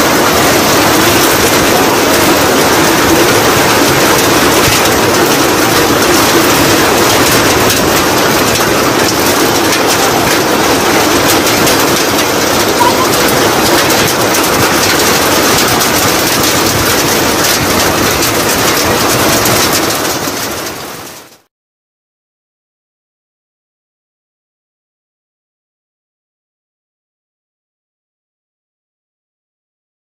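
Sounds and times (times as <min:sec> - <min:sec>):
rain pouring: 0:00.0 - 0:21.5.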